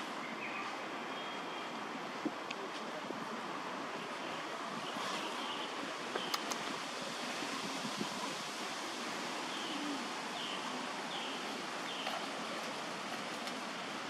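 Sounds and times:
steady outdoor hiss: 0.0 - 14.0
sharp clicks: 6.2 - 6.7.

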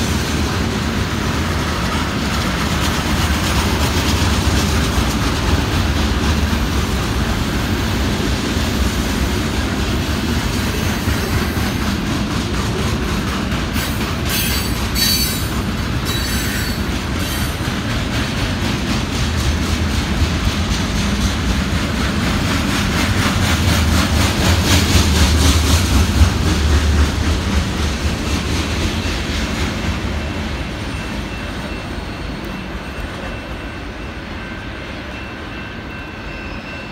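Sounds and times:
freight train rumbling on rails: 0.0 - 36.9
high wheel squeal: 14.2 - 17.6.

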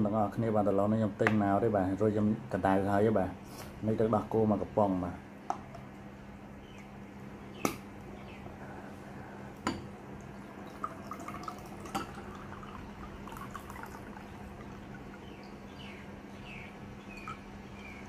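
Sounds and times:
milk pouring into bowl: 10.1 - 15.7.

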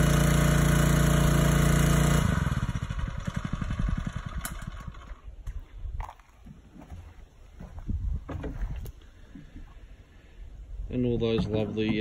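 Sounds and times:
small pump engine running: 0.0 - 5.3.

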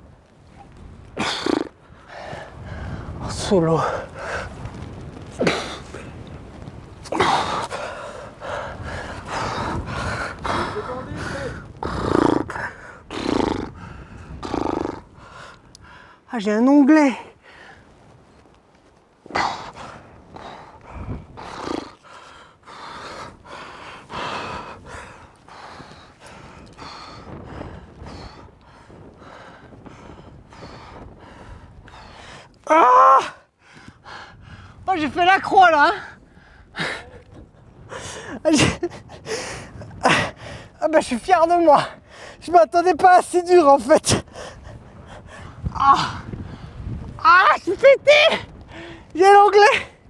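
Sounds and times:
climber grunting with effort: 1.1 - 2.4, 5.4 - 6.1, 7.0 - 15.6, 19.3 - 28.4, 36.7 - 40.4, 45.3 - 46.6
person breathing hard and gasping: 19.3 - 32.5, 37.9 - 40.8, 48.7 - 49.1.

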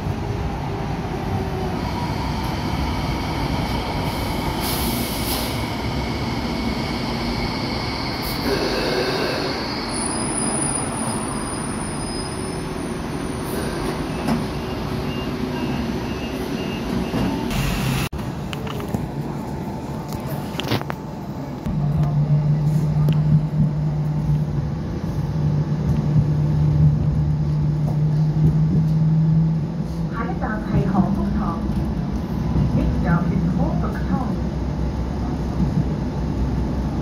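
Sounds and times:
tram rumble: 0.0 - 37.0
tram wheel squeal: 1.8 - 18.0.

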